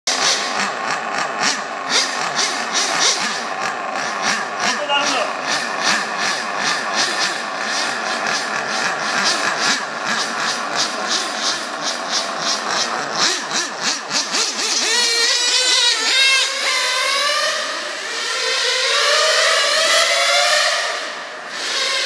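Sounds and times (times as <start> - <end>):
small high-revving rc car engines: 0.1 - 22.0.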